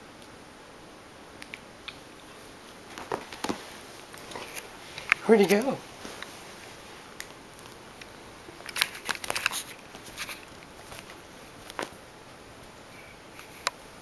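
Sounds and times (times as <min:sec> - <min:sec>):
kitten claws scratching fabric: 0:08.6 - 0:11.9.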